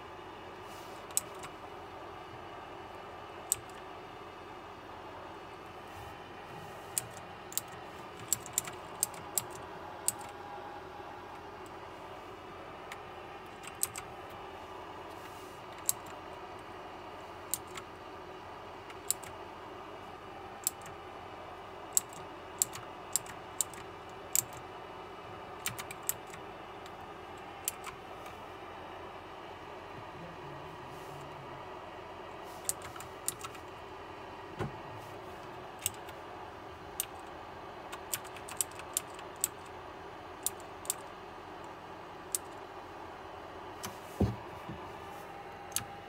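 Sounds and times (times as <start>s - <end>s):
mechanical keyboard key clicks: 7.0s - 10.3s, 21.9s - 24.6s, 38.0s - 39.6s.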